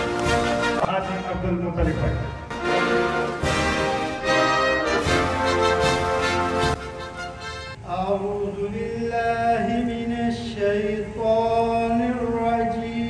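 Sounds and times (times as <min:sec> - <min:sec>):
music: 0:00.0 - 0:08.4.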